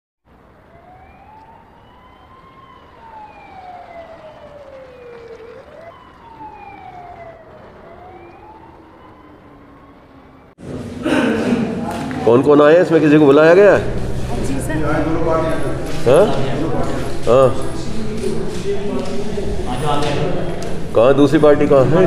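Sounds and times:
lower siren tone: 0:00.3 - 0:10.6, 0:13.5 - 0:18.2
police siren wailing: 0:00.3 - 0:10.6.

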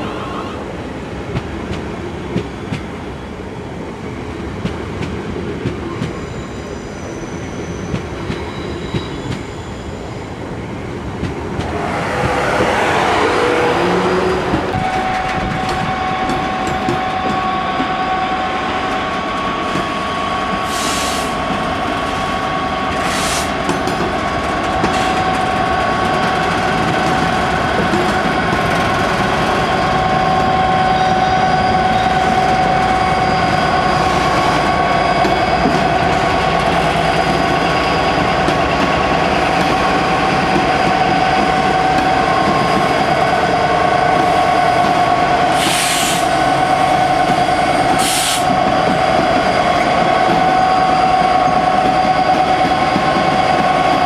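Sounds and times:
diesel locomotive engine running: 0:11.0 - 0:17.0.

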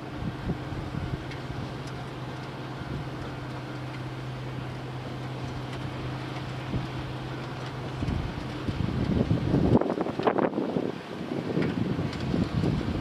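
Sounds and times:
wind hitting microphone: 0:00.0 - 0:01.8, 0:07.7 - 0:13.0
outdoor noise: 0:00.0 - 0:13.0.

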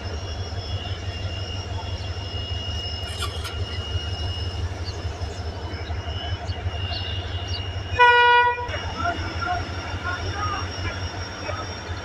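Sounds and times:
diesel engine idling: 0:00.0 - 0:12.0
thin steady whine: 0:00.0 - 0:12.0
faint bird chirps: 0:00.8 - 0:08.0.

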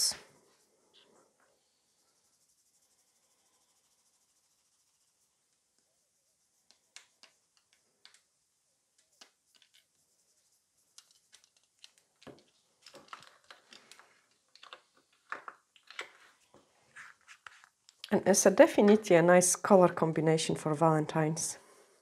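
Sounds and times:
small clicks and taps of tools: 0:06.7 - 0:08.3, 0:11.0 - 0:16.1, 0:17.8 - 0:18.2.

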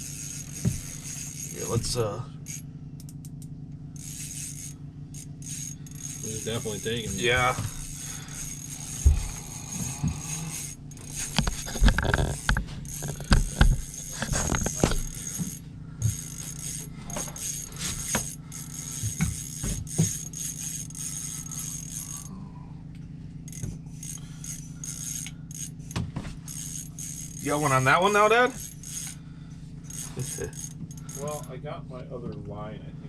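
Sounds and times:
fishing reel clicking: 0:00.0 - 0:03.4, 0:04.0 - 0:22.3, 0:23.5 - 0:29.2, 0:29.8 - 0:31.5
low hum: 0:00.0 - 0:33.0
knocks of handled gear: 0:08.9 - 0:10.3, 0:19.0 - 0:20.3.

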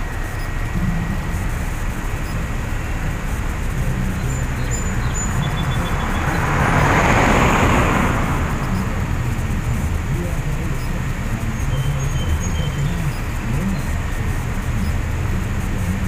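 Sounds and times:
low traffic rumble: 0:00.0 - 0:16.0
passing car tyre whoosh: 0:01.4 - 0:10.2.

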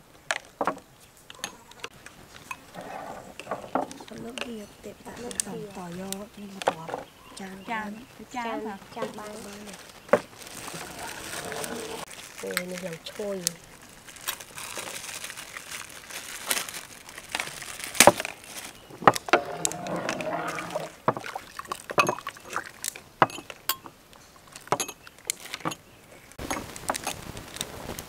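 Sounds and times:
liquid sloshing and pouring: 0:10.4 - 0:12.1, 0:19.0 - 0:23.6.

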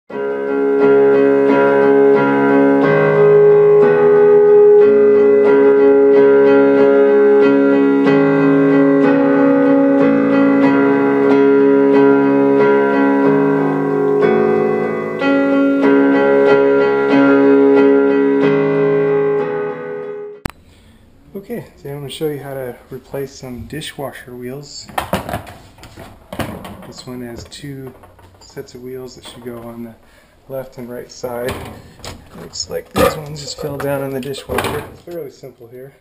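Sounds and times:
electric keyboard chords: 0:00.1 - 0:20.9.

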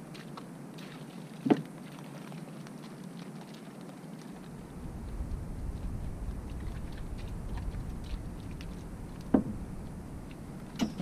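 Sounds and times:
wind buffeting microphone: 0:04.4 - 0:11.0.

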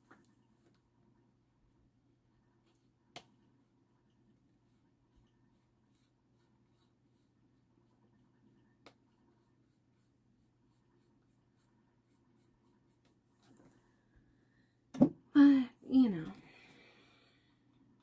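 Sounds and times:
paintbrush strokes: 0:04.1 - 0:14.0.

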